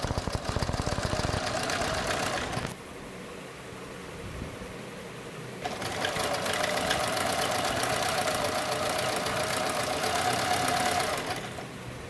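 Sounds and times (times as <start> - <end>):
sewing machine running: 0.0 - 2.7, 5.6 - 11.7.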